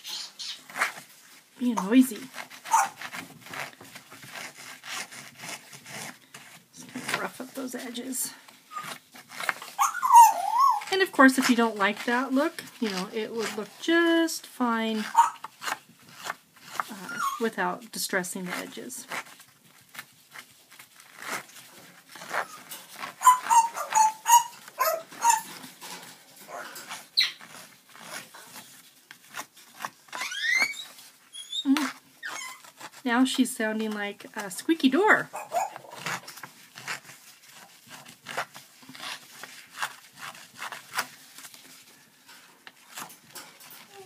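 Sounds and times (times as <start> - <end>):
tool scraping paper edge: 0.7 - 44.0
pet bird calling: 9.8 - 11.0, 15.1 - 15.5, 23.2 - 25.5.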